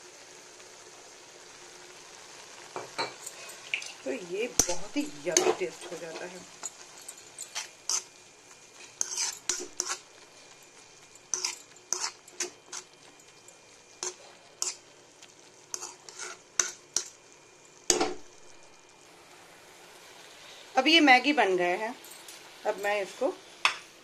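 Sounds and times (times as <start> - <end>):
faint sizzle of noodles: 0.0 - 24.0
spatula clinking and scraping pan: 2.8 - 14.9, 15.7 - 17.2.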